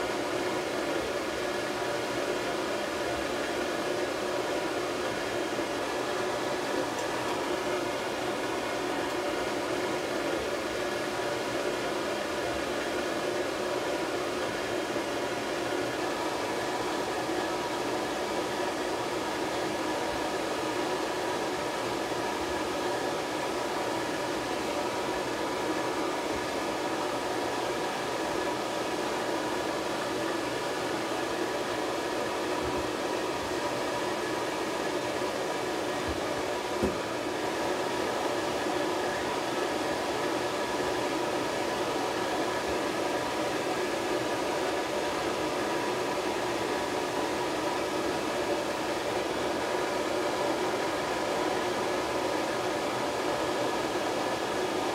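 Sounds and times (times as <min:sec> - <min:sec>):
dryer blowing air: 0:00.0 - 0:54.9
dryer motor hum: 0:00.0 - 0:54.9
soft knock: 0:36.8 - 0:37.0.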